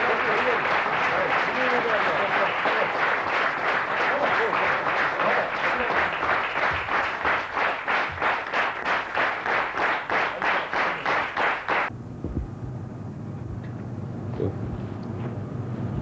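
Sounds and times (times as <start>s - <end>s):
group clapping in unison: 0.0s - 11.9s
low hum: 11.9s - 16.0s.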